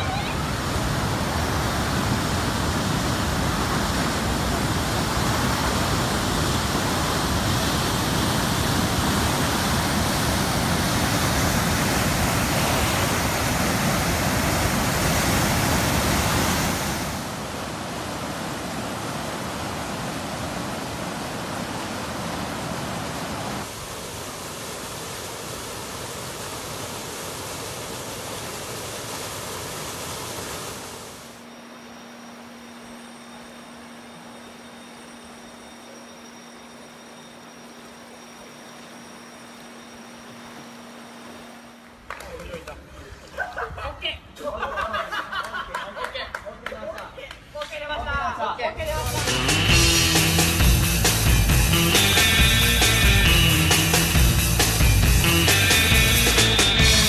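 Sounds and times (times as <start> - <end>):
rushing floodwater roar: 0.0 - 31.8, 48.8 - 57.0.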